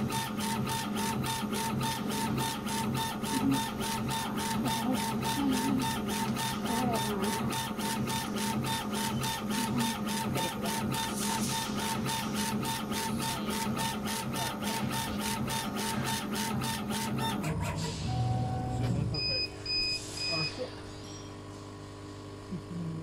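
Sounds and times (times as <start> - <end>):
steady mechanical hum: 0.0 - 23.0.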